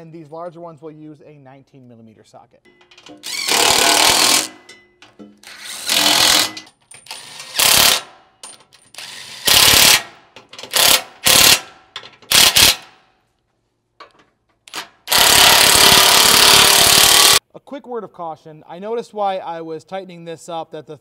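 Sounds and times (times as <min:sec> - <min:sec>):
impact wrench bursts: 0:02.8 - 0:04.7, 0:05.4 - 0:08.2, 0:08.9 - 0:13.0, 0:14.7 - 0:17.4.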